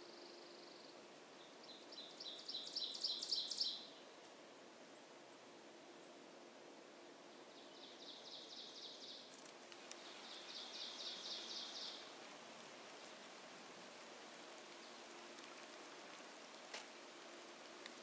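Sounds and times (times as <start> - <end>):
bird song of high notes: 0.0 - 4.1, 7.3 - 9.3, 10.0 - 12.1
steady hiss: 0.0 - 18.0.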